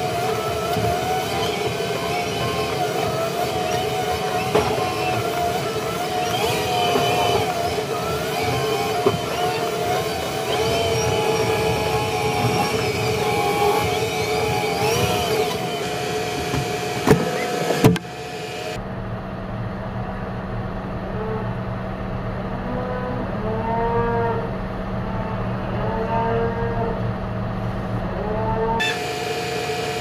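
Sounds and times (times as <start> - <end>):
tractor cab whine: 0.0 - 22.4, 28.7 - 30.0
tractor engine hum: 0.0 - 23.4, 26.8 - 30.0
cattle mooing: 22.6 - 27.1.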